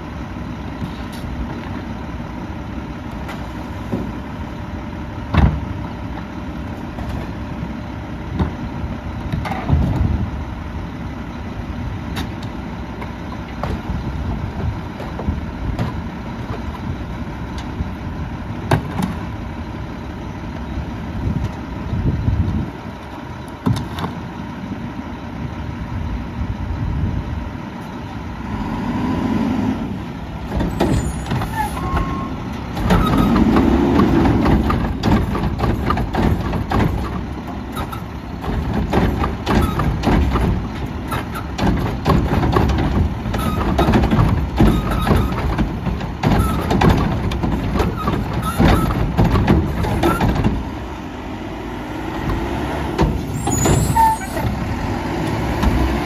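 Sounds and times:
garbage truck engine: 0.0s - 56.0s
hydraulic arm lifting: 28.5s - 56.0s
trash cans knocking and banging: 30.4s - 50.8s.

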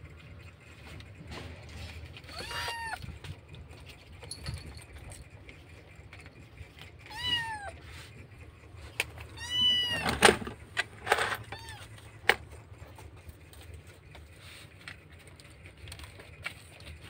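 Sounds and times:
kitten meowing: 2.3s - 3.0s, 7.1s - 7.8s, 9.3s - 10.1s, 11.5s - 11.9s.

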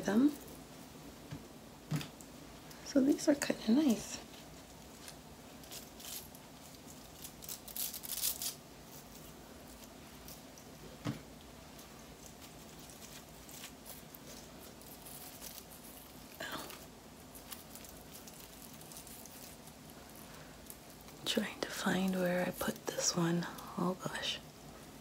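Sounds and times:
scratchy rustles of rollers in hair: 11.6s - 24.4s.

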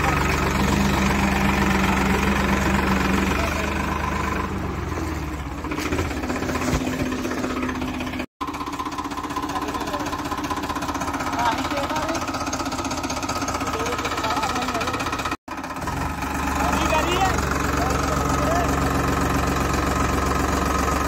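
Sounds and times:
tractor diesel engines running: 0.0s - 21.0s.

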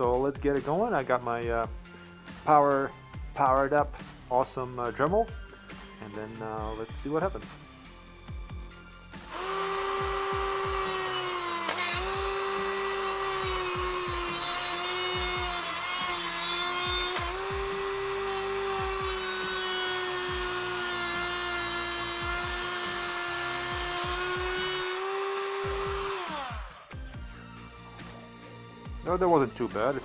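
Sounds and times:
rotary tool high whine: 9.2s - 28.0s
gritty grinding hiss of cutting: 9.2s - 28.2s.

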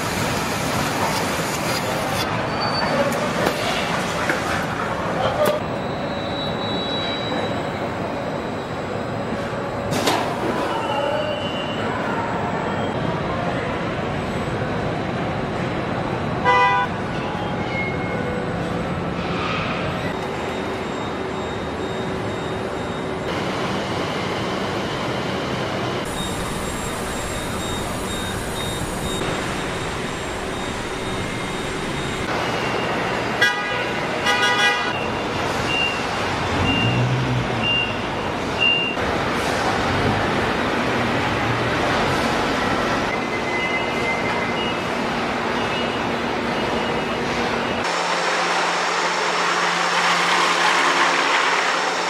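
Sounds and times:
machinery and air noise: 0.0s - 52.0s
vehicle horn toots: 16.4s - 16.9s, 33.4s - 35.0s
high electronic beep: 20.1s - 23.3s, 26.1s - 33.1s.

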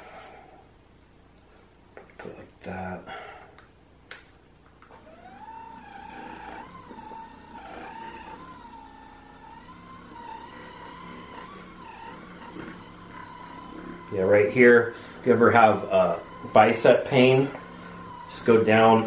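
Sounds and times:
massage gun motor whine: 4.8s - 19.0s.

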